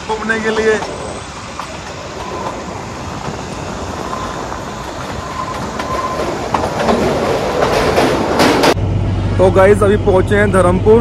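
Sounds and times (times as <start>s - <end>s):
train wheels clattering on track: 0.0s - 8.8s.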